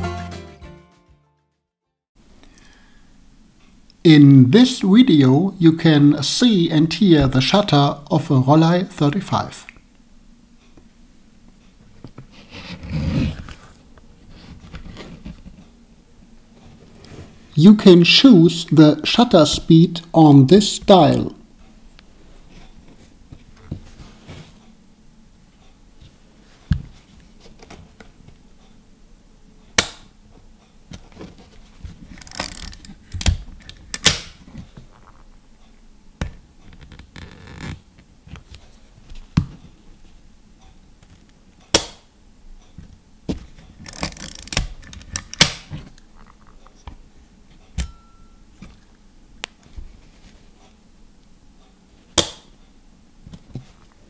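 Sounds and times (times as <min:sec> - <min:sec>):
film advance lever ratchet: 0:32.2 - 0:32.9, 0:43.8 - 0:45.5.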